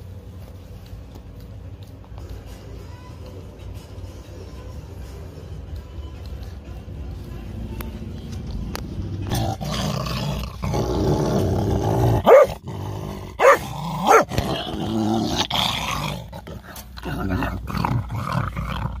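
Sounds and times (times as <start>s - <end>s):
dogs growling: 9.2s - 19.0s
dog barking sharply: 12.2s - 12.5s, 13.4s - 14.3s.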